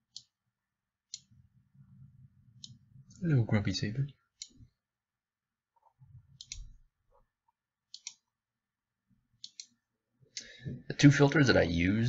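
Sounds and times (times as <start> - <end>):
computer mouse clicks: 2.6 - 2.8, 6.4 - 6.8, 7.9 - 8.3, 9.4 - 10.5.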